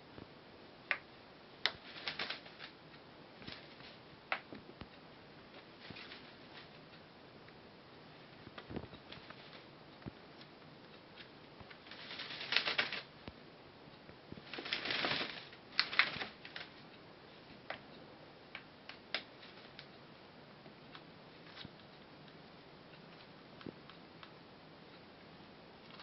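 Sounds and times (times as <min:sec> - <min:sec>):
bird rustling feathers: 0:01.7 - 0:02.8, 0:03.4 - 0:04.0, 0:05.5 - 0:06.8, 0:08.3 - 0:09.7, 0:11.2 - 0:13.1, 0:14.3 - 0:16.8.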